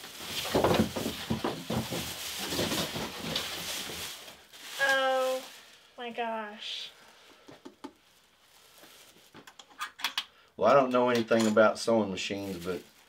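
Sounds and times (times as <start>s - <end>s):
plastic bag crinkling: 0.0s - 6.4s, 8.0s - 9.6s, 12.3s - 13.0s.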